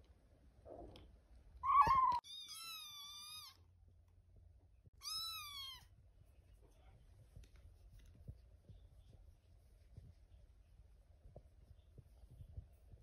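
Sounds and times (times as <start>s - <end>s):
kitten meowing: 1.6s - 3.6s, 5.0s - 5.9s.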